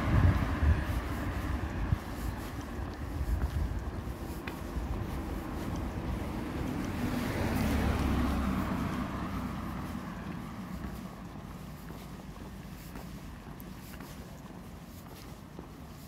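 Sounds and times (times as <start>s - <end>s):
vehicle passing by rumbling: 0.0s - 2.1s, 4.7s - 11.4s.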